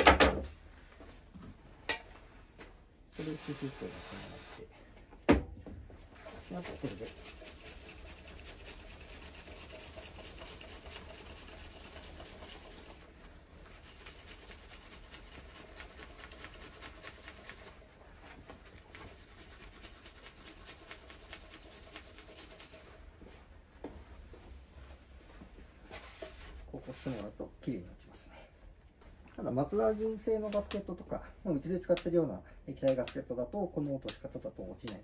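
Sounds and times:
scrubbing strokes on metal: 6.2 - 13.1, 13.8 - 17.8, 18.9 - 23.0.

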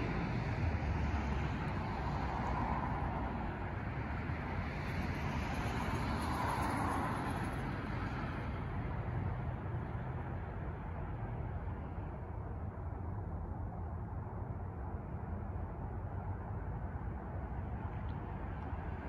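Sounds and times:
background traffic: 0.0 - 19.0.

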